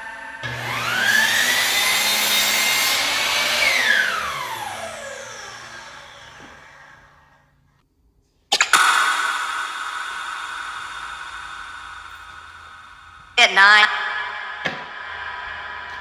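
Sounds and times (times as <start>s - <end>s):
saw motor winding down: 0.0s - 7.5s
miter saw cutting wood: 0.1s - 7.4s.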